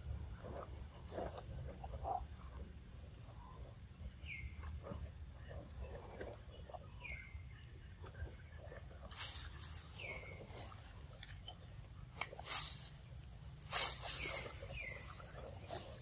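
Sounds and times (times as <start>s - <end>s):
wet chewing and lip-smacking: 7.7s - 12.6s.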